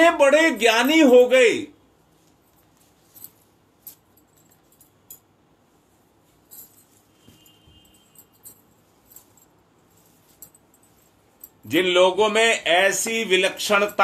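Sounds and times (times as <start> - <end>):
light rustles: 6.2 - 11.6
faint thin high tone: 7.1 - 8.3.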